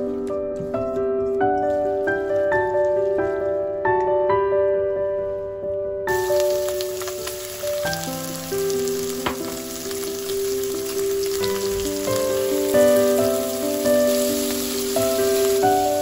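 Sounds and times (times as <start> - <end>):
background music: 0.0 - 16.0
meat sizzling in a frying pan: 6.1 - 16.0.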